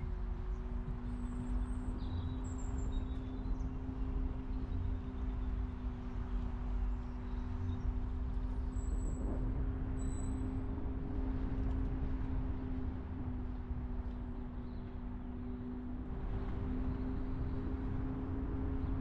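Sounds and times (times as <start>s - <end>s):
road noise rumble: 6.0s - 19.0s.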